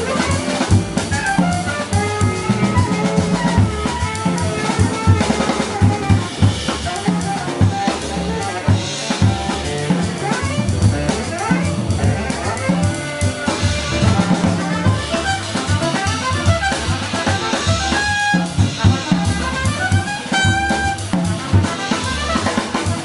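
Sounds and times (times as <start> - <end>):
drum kit: 0.0 - 23.0
piano: 0.0 - 23.0
walking upright bass: 0.0 - 23.0.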